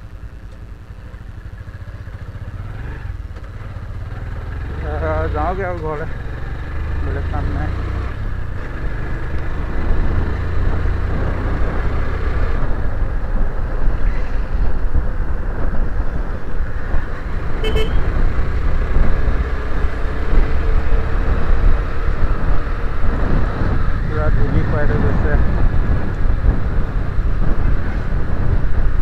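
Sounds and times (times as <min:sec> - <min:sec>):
motorcycle engine running: 0:00.0 - 0:29.0
wind rumble on microphone: 0:08.1 - 0:29.0
short horn beep: 0:17.6 - 0:18.1.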